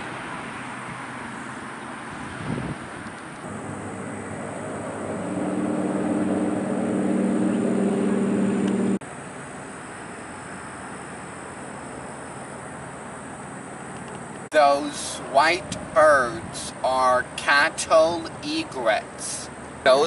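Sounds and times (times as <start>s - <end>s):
engine humming drone: 0.0s - 20.0s
outdoor background hiss: 9.0s - 20.0s.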